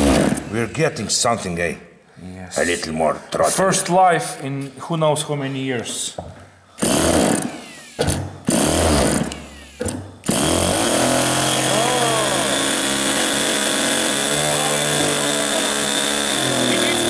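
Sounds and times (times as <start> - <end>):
electric starter whirring: 6.8 - 17.0
small engine running: 6.8 - 17.0.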